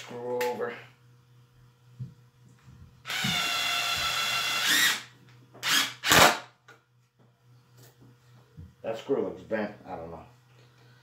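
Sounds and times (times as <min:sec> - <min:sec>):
impact driver motor running: 0:03.1 - 0:06.2.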